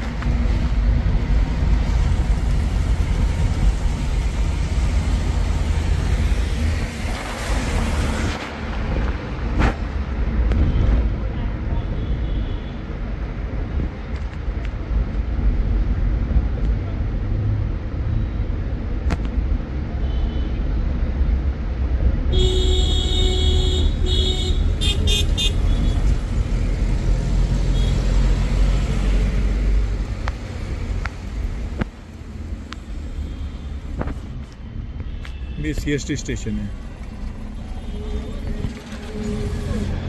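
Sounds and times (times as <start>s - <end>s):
road traffic rumble: 0.0s - 40.0s
vehicle horn: 22.3s - 26.0s.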